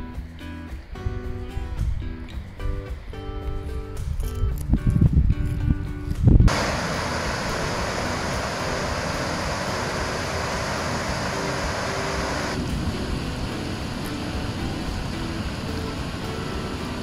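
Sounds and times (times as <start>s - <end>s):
waterfall rushing: 6.5s - 17.0s.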